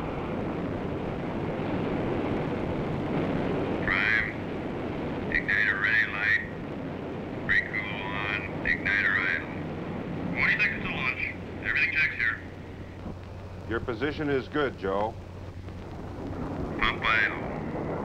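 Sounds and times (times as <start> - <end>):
radio static rushing: 0.0 - 18.0
garbled radio transmissions: 3.8 - 4.6, 5.2 - 6.7, 7.4 - 18.0.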